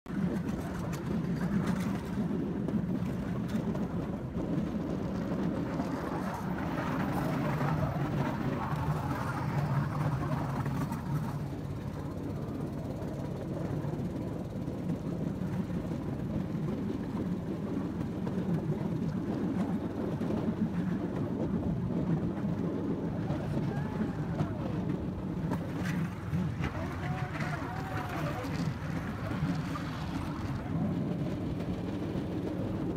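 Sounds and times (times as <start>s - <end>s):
wheels rumbling on track: 0.1s - 32.9s.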